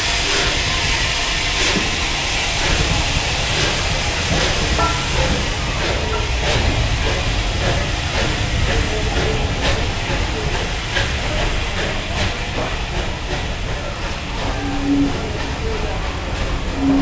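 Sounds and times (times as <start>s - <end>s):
low rumble of passing train: 0.0s - 17.0s
steam hissing from locomotive: 0.0s - 17.0s.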